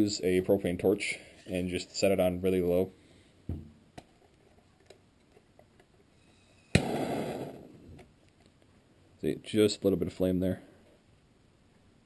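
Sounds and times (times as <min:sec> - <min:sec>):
torch igniting pop: 0:06.7 - 0:07.7.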